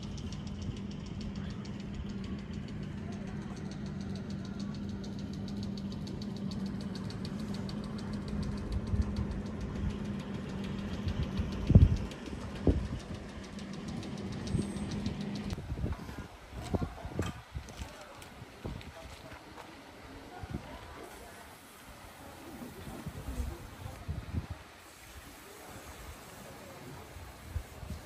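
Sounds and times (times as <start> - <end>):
fast even ticking: 0.0 - 15.6
engine idling: 0.0 - 28.0.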